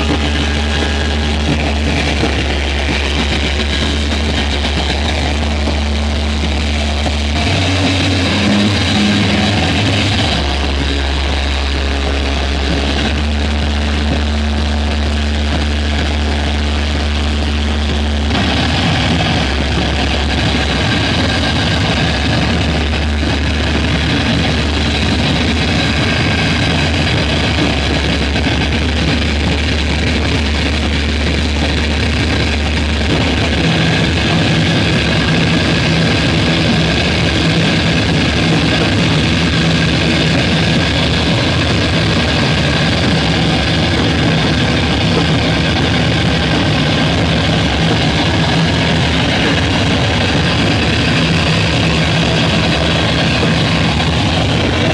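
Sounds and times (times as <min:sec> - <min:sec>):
deep low hum: 0:00.0 - 0:54.9
electronic drone from effects pedals: 0:00.0 - 0:54.9
steady mid-low tone: 0:00.0 - 0:54.9.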